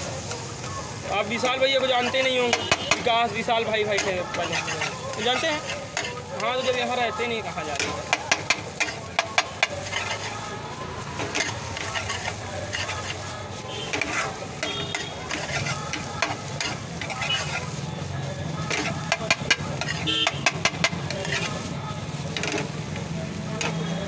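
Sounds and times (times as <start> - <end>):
eggs sizzling in a pan: 0.0 - 24.0
metal spatula scraping a pan: 1.4 - 24.0.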